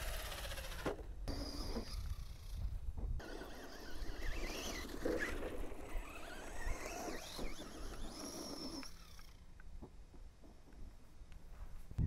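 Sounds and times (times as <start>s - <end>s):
electric motor whine: 0.0s - 9.5s.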